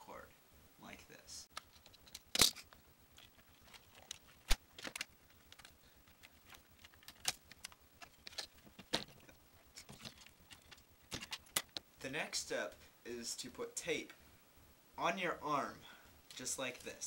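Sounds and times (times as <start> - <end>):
hands handling plastic parts: 1.5 - 11.9.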